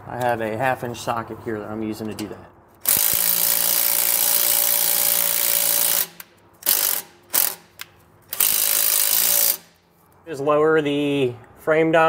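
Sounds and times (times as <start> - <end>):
impact driver hammering screw: 2.8 - 9.7.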